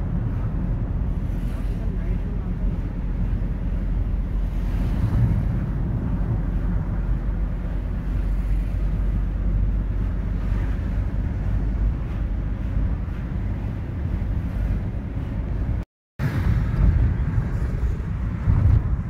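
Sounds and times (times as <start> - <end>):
vehicle rumble: 0.0 - 19.0
wind buffeting microphone: 0.0 - 19.0.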